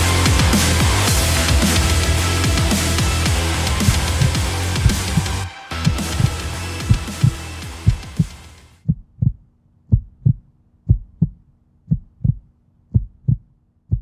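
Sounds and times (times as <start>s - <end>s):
heavy music: 0.0s - 8.8s
heartbeat thumps: 3.8s - 14.0s.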